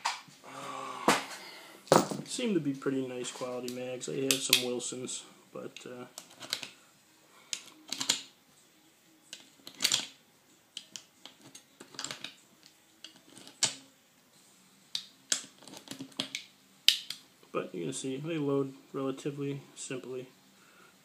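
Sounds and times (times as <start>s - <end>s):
cartridges clicking into magazine: 7.5s - 8.3s, 9.3s - 10.1s, 15.0s - 17.2s.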